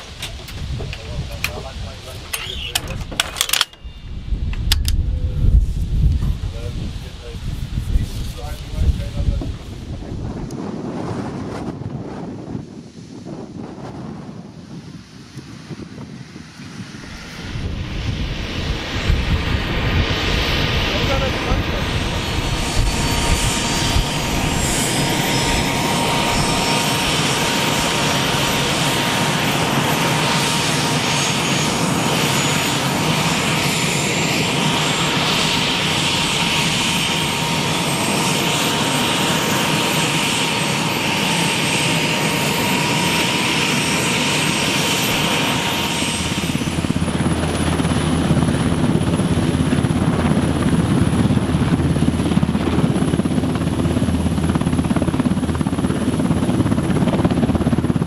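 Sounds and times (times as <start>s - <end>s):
helicopter rotor sound: 0.0s - 10.9s, 15.7s - 58.0s
helicopter turbine whine: 0.0s - 58.0s.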